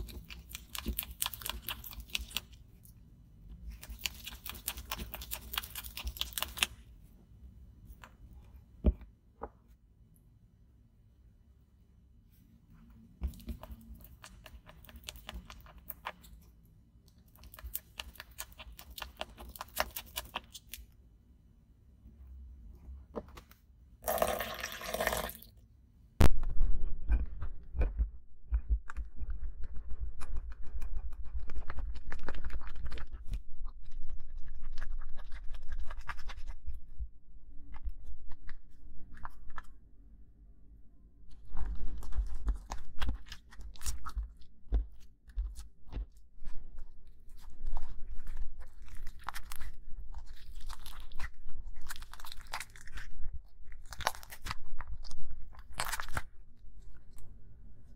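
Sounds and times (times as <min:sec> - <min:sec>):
slime squelching and crackling: 0:00.0 - 0:07.1, 0:13.2 - 0:21.1, 0:27.7 - 0:39.9, 0:41.2 - 0:57.9
water pouring into glass bowl: 0:24.0 - 0:25.5.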